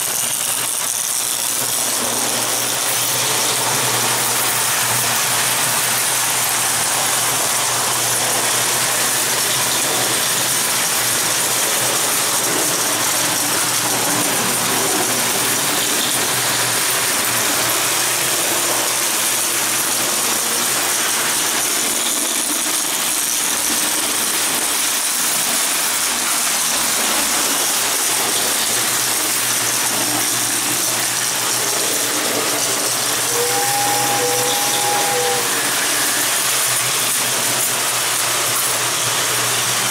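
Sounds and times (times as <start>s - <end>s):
toy train rattling on rails: 0.0s - 39.9s
short steady tone: 33.3s - 36.4s.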